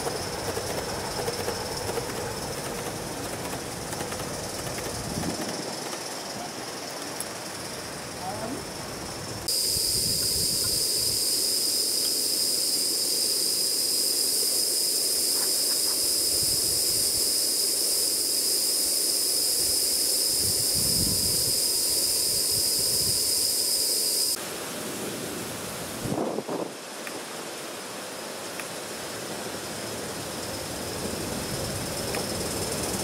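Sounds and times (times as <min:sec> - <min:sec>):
steam hissing with whistling tone: 0:00.0 - 0:33.0.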